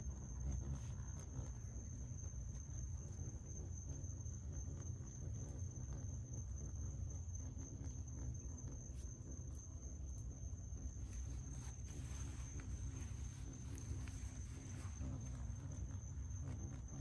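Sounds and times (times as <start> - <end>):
crickets trilling: 0.0 - 17.0.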